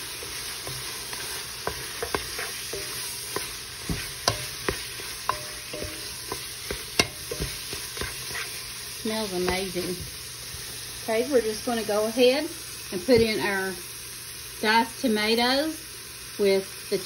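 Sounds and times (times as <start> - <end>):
utensil scraping a pot: 0.0 - 10.7
beef sizzling in a pot: 0.0 - 17.0.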